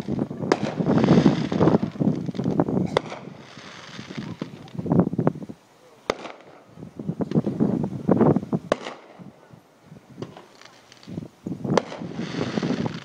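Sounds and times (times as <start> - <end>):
firework thumps and crackling: 0.0 - 5.2, 6.0 - 9.4, 10.2 - 13.0
firework shells cracking: 6.1 - 7.5, 8.7 - 9.2, 10.2 - 13.0.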